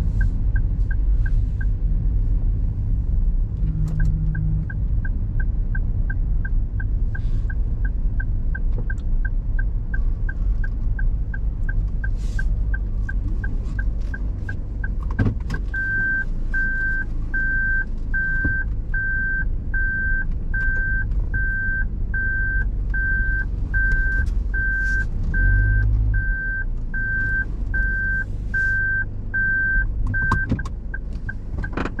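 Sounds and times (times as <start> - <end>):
engine and road noise: 0.0 - 32.0
parking sensor beeps: 10.3 - 32.0.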